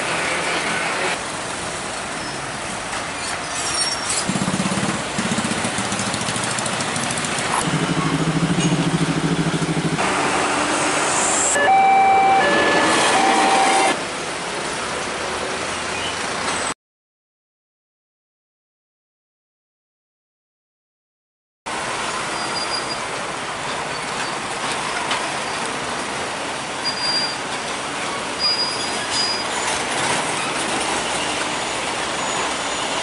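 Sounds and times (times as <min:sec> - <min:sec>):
truck engines passing: 0:00.0 - 0:16.8, 0:21.7 - 0:33.0
held horn-like tone: 0:10.6 - 0:14.0.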